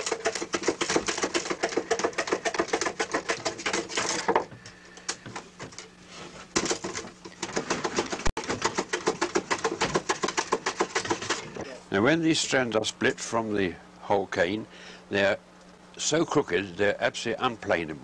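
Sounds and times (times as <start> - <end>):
hand tool scraping bamboo: 0.0 - 4.3, 7.6 - 11.6.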